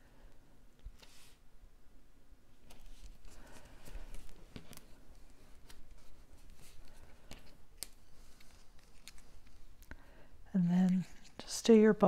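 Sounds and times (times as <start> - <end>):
paper rustling: 2.6 - 9.7.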